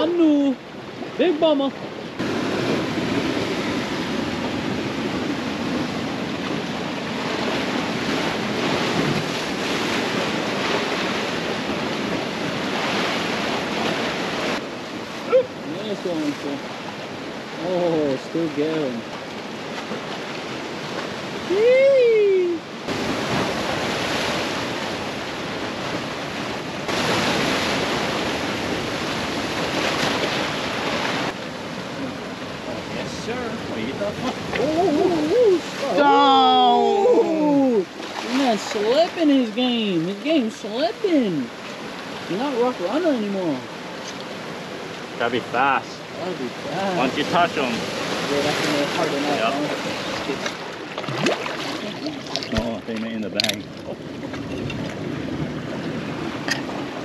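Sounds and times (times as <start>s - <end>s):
surf washing over rocks: 0.0s - 57.0s
wind buffeting microphone: 53.3s - 57.0s.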